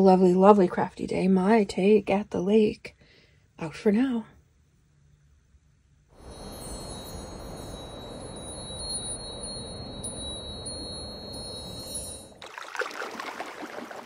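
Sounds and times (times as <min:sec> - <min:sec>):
whooshing hiss: 0:06.2 - 0:12.4
wind chimes tinkling: 0:06.2 - 0:12.5.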